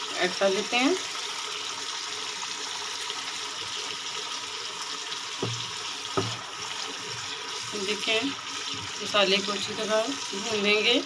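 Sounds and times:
food sizzling in oil: 0.0 - 11.0
dull knocks: 5.4 - 6.6.

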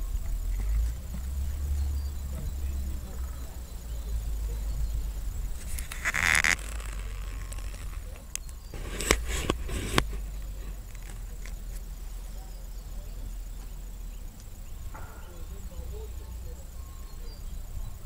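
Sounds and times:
wind rumbling on microphone: 0.0 - 11.8
sharp clicks: 5.5 - 11.7
brief scraping noise: 5.6 - 10.3.

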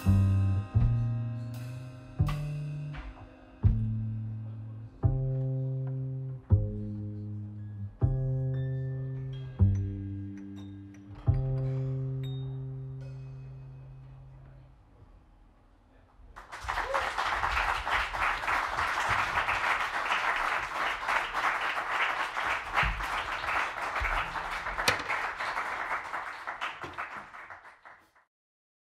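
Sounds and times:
audience applauding: 16.4 - 28.3.

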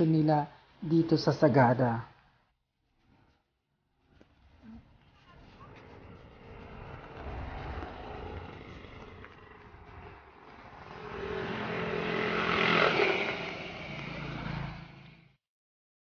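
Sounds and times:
vehicle driving past: 4.2 - 15.4.

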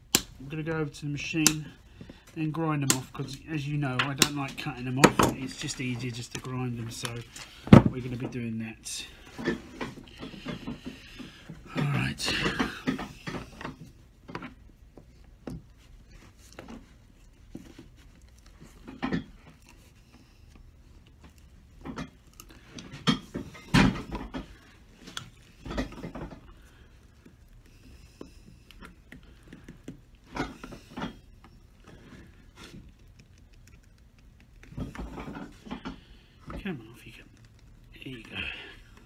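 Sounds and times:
nippers clicking and scraping: 9.2 - 39.0.

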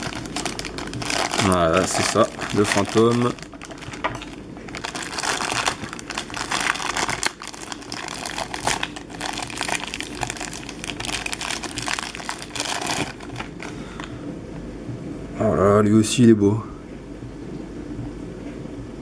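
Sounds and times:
plastic bag crinkling: 0.0 - 14.1.

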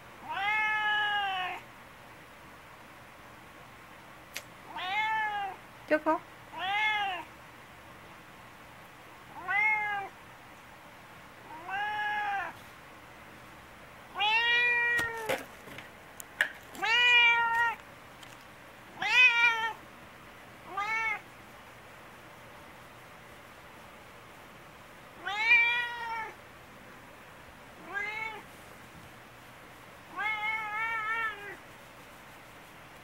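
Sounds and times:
cat meowing loudly: 0.2 - 1.6, 4.7 - 5.6, 6.5 - 7.3, 9.4 - 10.1, 11.5 - 12.6, 14.1 - 15.4, 16.8 - 17.8, 19.0 - 19.8, 20.7 - 21.2, 25.2 - 26.4, 27.8 - 28.4, 30.1 - 31.6.

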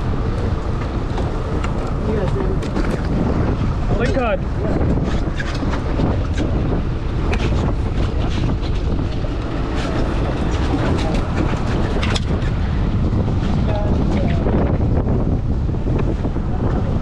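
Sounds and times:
boat running on water: 0.0 - 17.0
wind buffeting microphone: 0.0 - 17.0.

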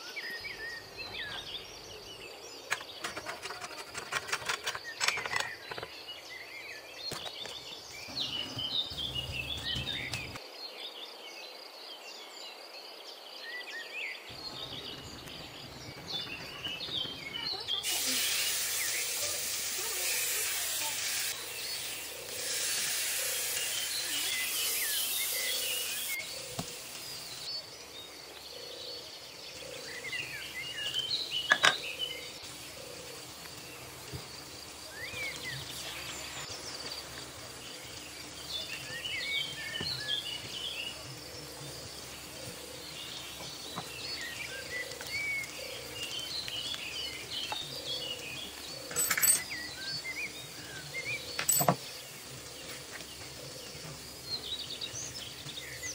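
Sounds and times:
birds chirping: 0.0 - 10.4, 13.6 - 55.9
meat sizzling on a grill pan: 17.8 - 27.5
sharp clinks: 48.9 - 49.6.

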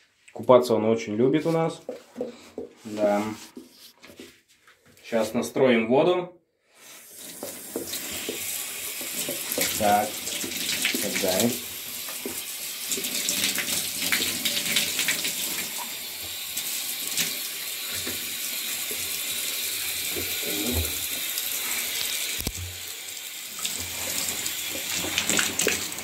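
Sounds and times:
water running into bathtub: 6.7 - 26.0.

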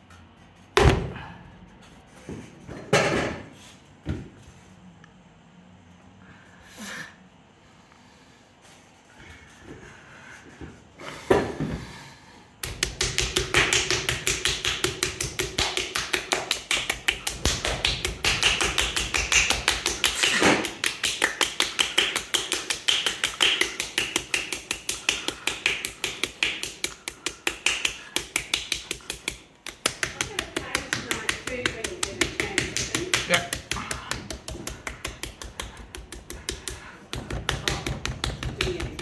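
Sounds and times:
hands slapping clay: 12.6 - 39.0.

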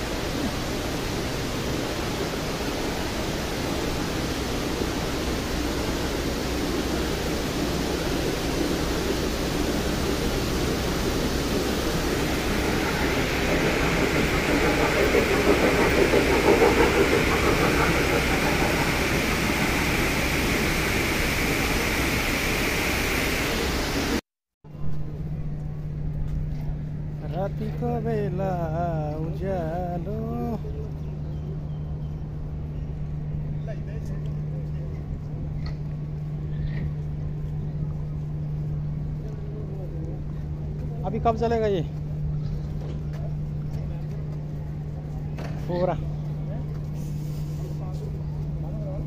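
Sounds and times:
indoor waterfall rushing: 0.0 - 13.5, 19.9 - 24.2.

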